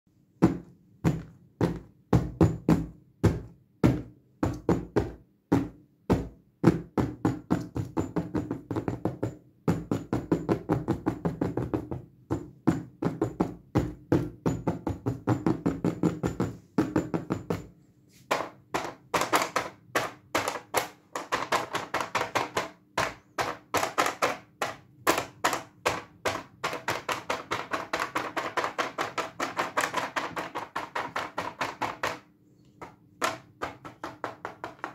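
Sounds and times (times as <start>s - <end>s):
fingernail tapping on padded case: 0.4s - 17.6s.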